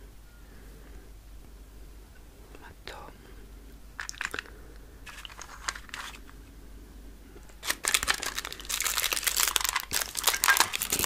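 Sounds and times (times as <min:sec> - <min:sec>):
packaging crinkling: 0:04.0 - 0:06.3, 0:07.5 - 0:11.0.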